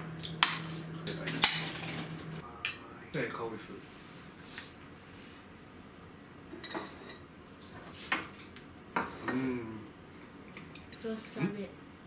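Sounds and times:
person humming mmm: 9.2 - 9.9.

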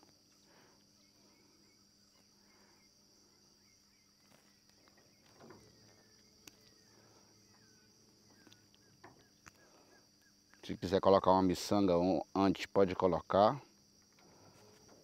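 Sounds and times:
faint bird chirps: 0.0 - 11.5.

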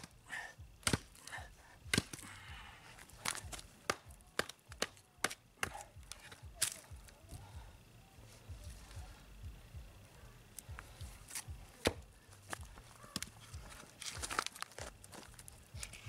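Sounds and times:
knife chopping into wood: 0.8 - 1.1, 11.8 - 12.0.

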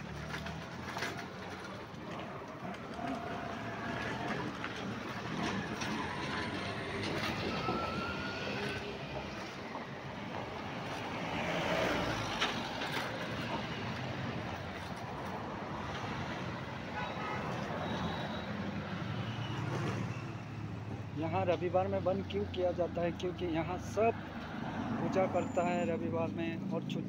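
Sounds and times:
vehicles driving past: 0.0 - 27.0.

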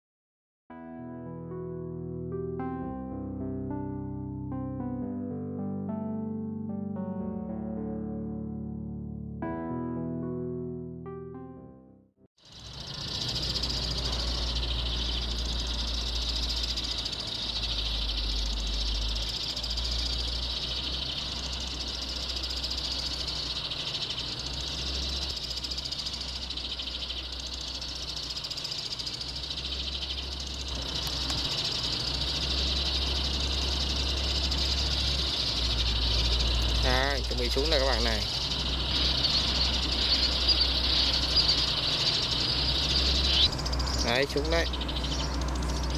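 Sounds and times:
low steady rumble: 12.4 - 45.9
recorded sparrow chirping: 12.4 - 45.9.

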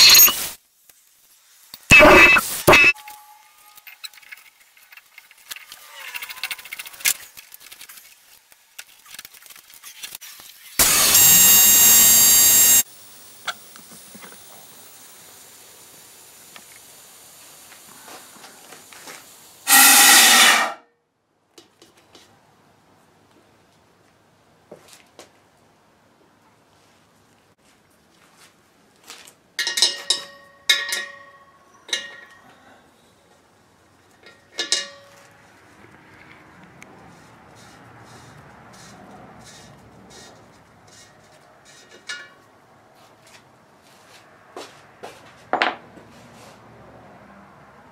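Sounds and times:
faint steady hiss: 0.0 - 5.8, 10.1 - 19.7
compressed air hissing into tank: 12.7 - 20.7.

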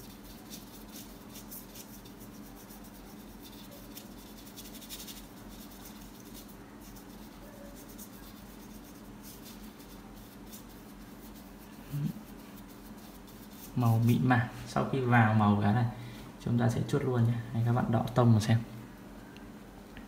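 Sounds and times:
paintbrush scratchy strokes: 0.0 - 15.4
low steady hum: 0.0 - 20.0.

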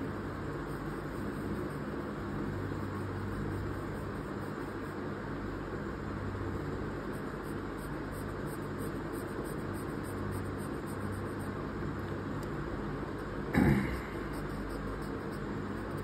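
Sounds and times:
steady background hum: 0.0 - 16.0
pencil scratching on paper: 0.6 - 5.0, 7.1 - 11.6, 14.2 - 16.0.

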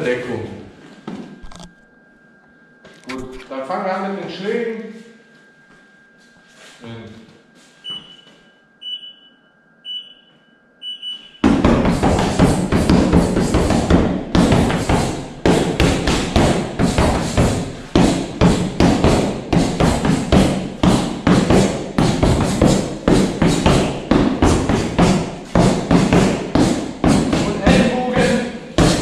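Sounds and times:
workout music with drum beat: 11.5 - 29.0.

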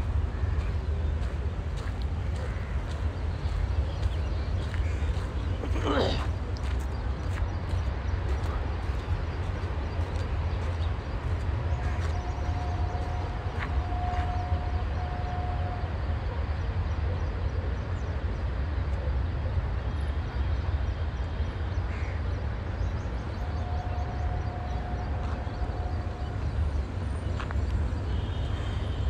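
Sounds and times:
steady low rumble: 0.0 - 14.7.

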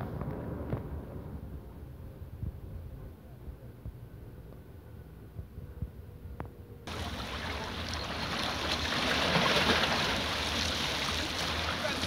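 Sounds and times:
low wind rumble: 0.0 - 12.0
sea water lapping and washing: 6.9 - 12.0.

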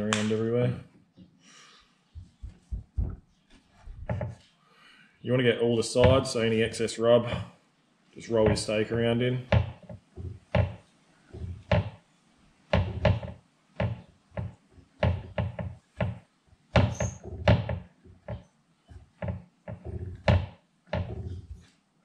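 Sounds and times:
steak thumping on wooden board: 9.5 - 12.0.

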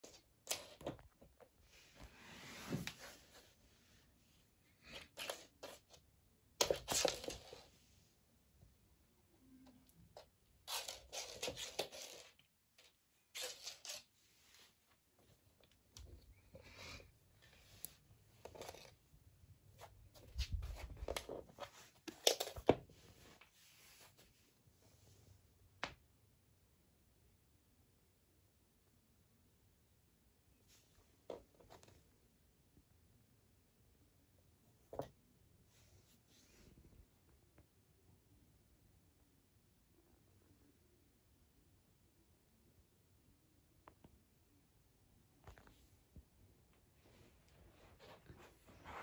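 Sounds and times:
metal hairpin scraping on floor: 10.7 - 12.4, 13.3 - 14.1.

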